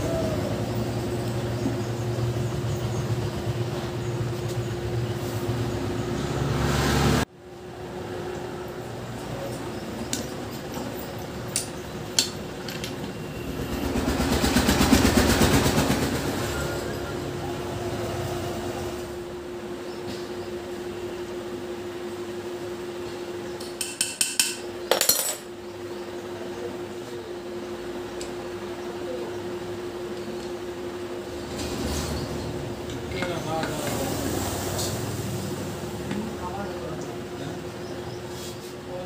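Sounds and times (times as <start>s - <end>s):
passing engine: 0.1s - 7.3s.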